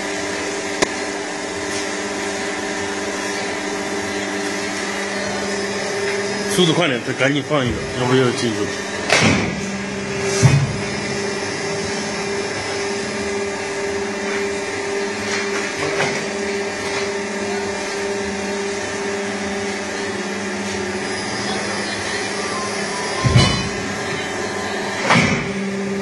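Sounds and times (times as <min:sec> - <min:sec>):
electric motor hum: 0:00.0 - 0:26.0
machine knocks: 0:23.2 - 0:23.9.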